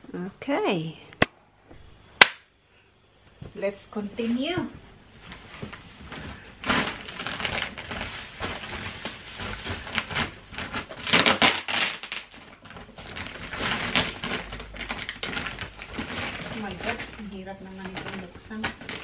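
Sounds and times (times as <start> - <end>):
plastic wrapping crinkling: 5.2 - 19.0.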